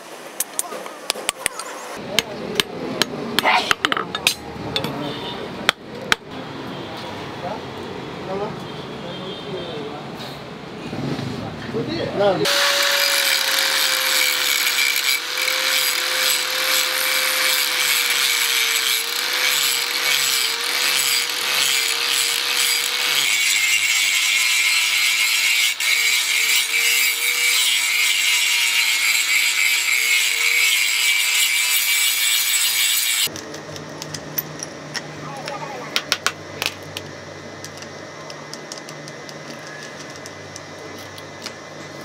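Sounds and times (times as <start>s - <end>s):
power tool grating: 12.4s - 33.3s.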